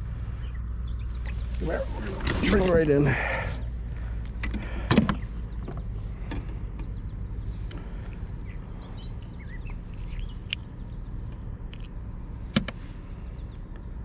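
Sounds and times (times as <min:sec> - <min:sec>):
low steady rumble: 0:00.0 - 0:14.0
faint bird chirps: 0:03.4 - 0:14.0.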